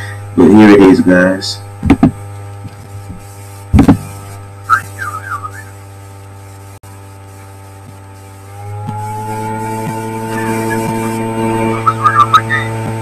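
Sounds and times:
droning tone: 0.0 - 13.0
low electrical hum: 0.0 - 13.0
warbling whistle: 4.6 - 5.8, 10.0 - 12.8.

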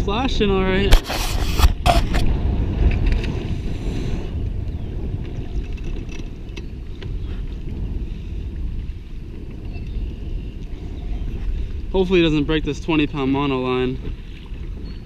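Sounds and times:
wind buffeting microphone: 0.0 - 15.0
camera handling knocks and rustles: 0.9 - 2.3.

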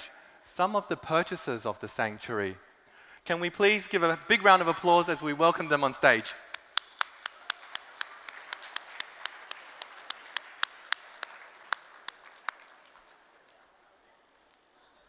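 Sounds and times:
close hand claps: 6.5 - 13.6
audience applause: 6.8 - 13.5.

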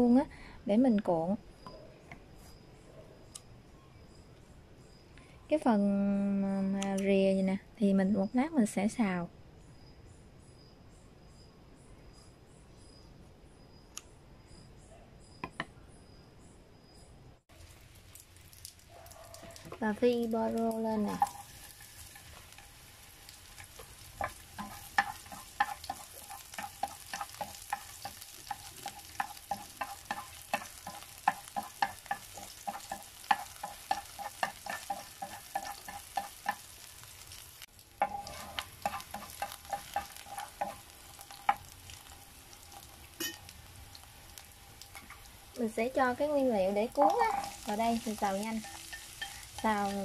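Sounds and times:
leeks sizzling in oil: 17.5 - 50.0
chopsticks tapping and scraping pan: 20.8 - 45.3, 46.0 - 50.0.

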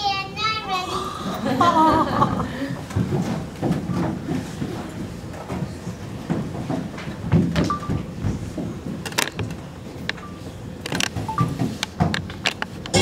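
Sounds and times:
children's footsteps on stage: 2.9 - 9.0.

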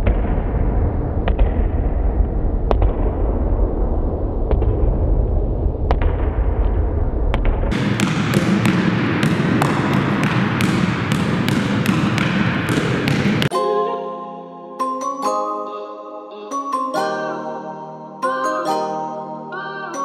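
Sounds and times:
basketball bouncing on gym floor: 7.3 - 13.5.

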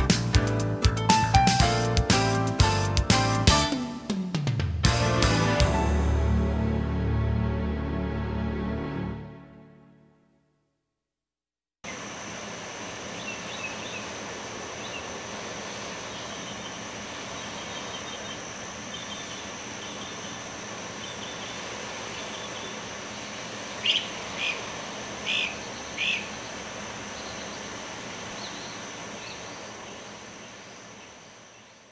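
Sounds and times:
small birds chirping: 13.0 - 31.9
short bird calls: 23.8 - 26.6.

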